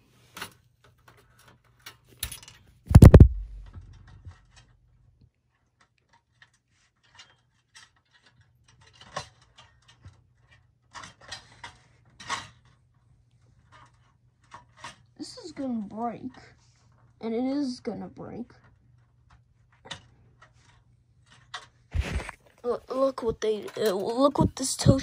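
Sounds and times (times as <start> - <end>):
faint low hum: 2.9 - 5.1
plastic and metal parts clicking: 23.2 - 25.0.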